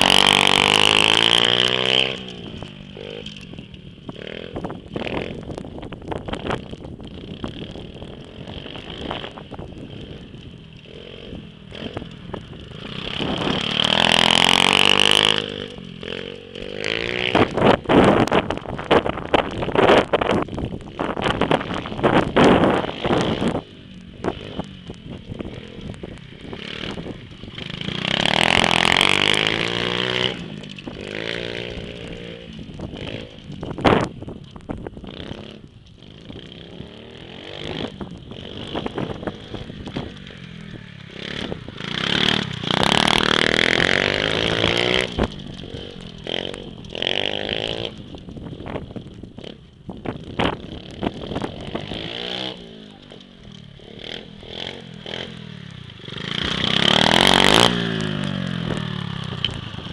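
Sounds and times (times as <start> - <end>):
pit bike engine revving: 0.0 - 59.9.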